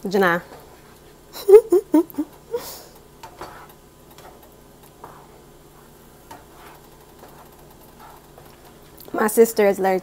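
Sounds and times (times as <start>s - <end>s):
spatula scraping frying pan: 3.1s - 9.0s.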